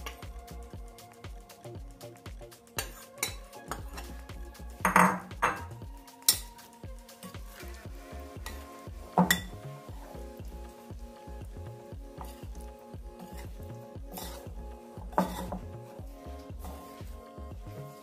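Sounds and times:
background music with steady beat: 0.0s - 18.0s
metal spoon scraping glass bowl: 2.8s - 4.2s, 9.2s - 9.6s, 13.2s - 14.5s, 15.1s - 15.7s.

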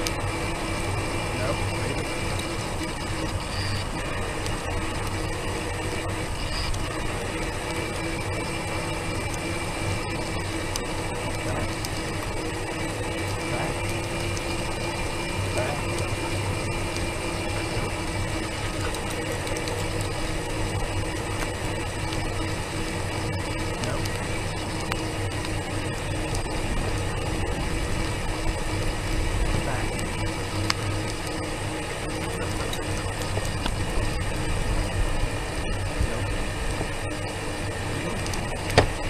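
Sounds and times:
small vehicle whirring and rattling: 0.0s - 39.0s.

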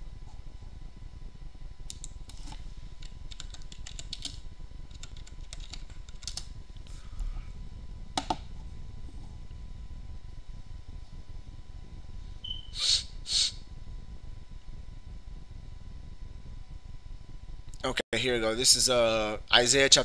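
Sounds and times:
keyboard typing: 3.3s - 6.5s.

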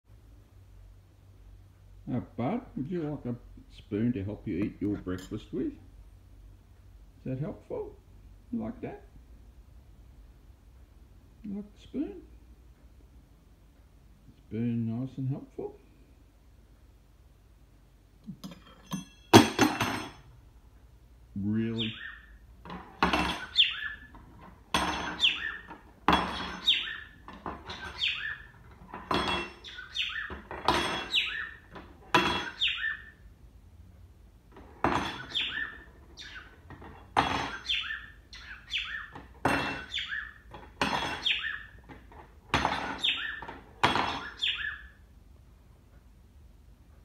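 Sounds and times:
metal spoon clattering on wooden floor: 18.4s - 20.3s, 22.6s - 32.6s, 34.5s - 35.8s, 36.6s - 37.7s, 39.1s - 44.4s
cockatiel chirps: 21.8s - 22.4s, 23.4s - 24.1s, 27.8s - 28.5s, 29.6s - 30.4s, 32.5s - 33.2s, 35.2s - 36.5s, 37.5s - 39.1s, 44.2s - 45.0s.

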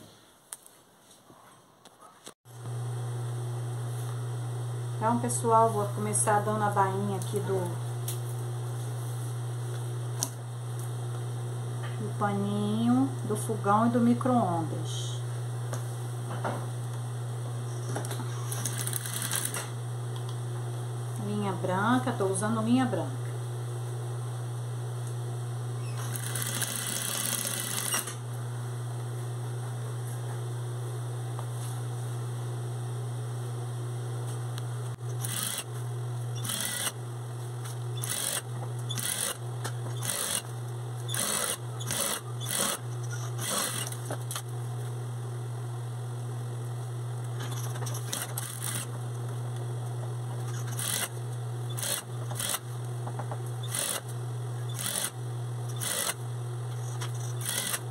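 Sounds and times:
steady low hum: 2.5s - 57.9s
sewing machine stitching: 18.4s - 19.7s, 26.0s - 28.2s, 35.2s - 35.7s, 36.4s - 37.0s, 38.0s - 40.4s, 41.1s - 44.0s, 47.6s - 48.9s, 50.5s - 51.1s, 51.7s - 52.6s, 53.6s - 54.0s, 54.7s - 56.2s, 57.1s - 57.9s.

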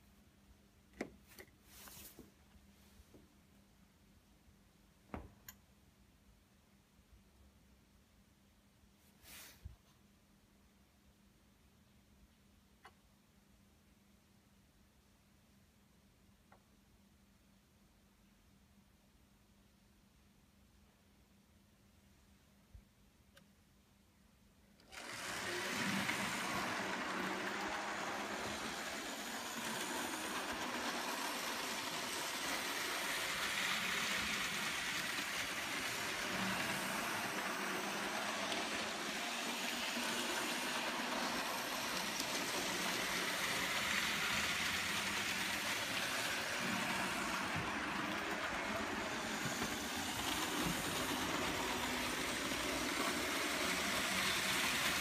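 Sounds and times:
model trains rattling on track: 24.9s - 55.0s.

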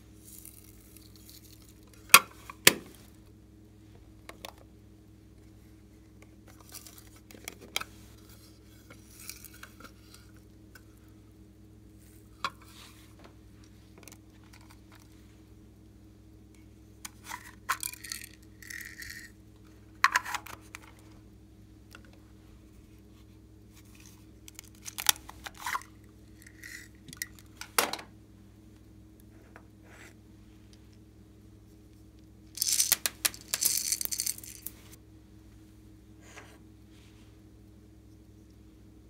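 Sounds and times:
plastic beads rattling: 17.7s - 19.3s, 24.5s - 27.6s, 32.6s - 34.9s.

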